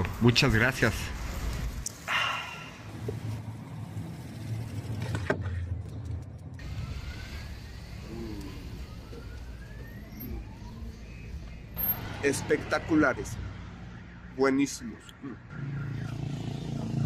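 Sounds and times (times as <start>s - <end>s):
low traffic rumble: 0.0s - 17.0s
vehicle engine accelerating past: 15.5s - 17.0s.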